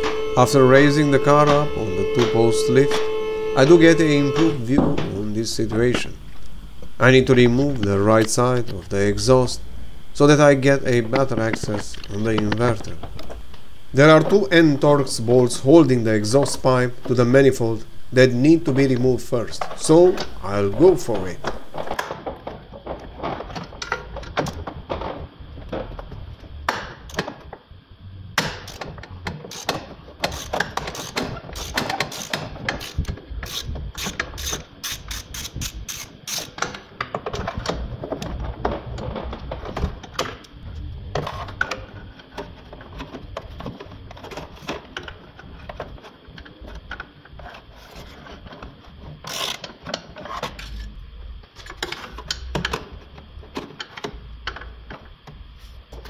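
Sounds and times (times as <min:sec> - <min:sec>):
ratchet wrench clicking: 0:28.6 - 0:28.9, 0:29.5 - 0:36.8, 0:49.3 - 0:49.6.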